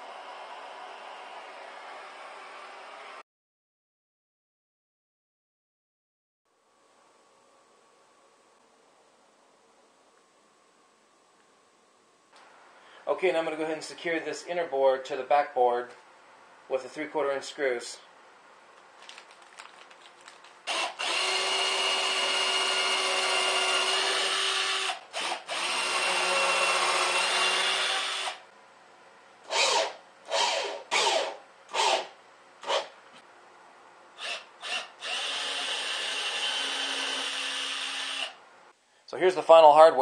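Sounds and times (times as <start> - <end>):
cordless drill driving screws: 20.7 - 28.4, 29.5 - 32.9, 34.2 - 38.4.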